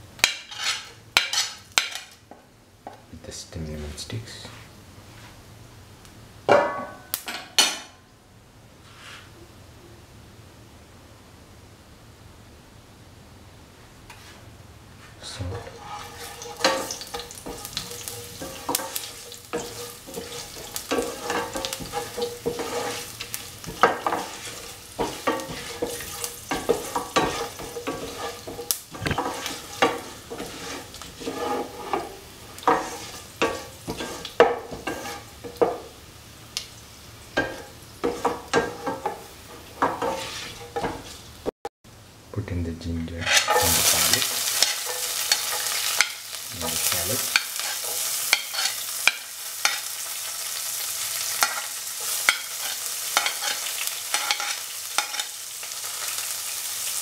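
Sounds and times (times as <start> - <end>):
spices sizzling in oil: 0.0 - 3.1, 14.1 - 57.0
spatula scraping and tapping pan: 0.2 - 3.0, 15.5 - 36.0, 37.3 - 41.2, 43.2 - 50.0, 51.2 - 56.2.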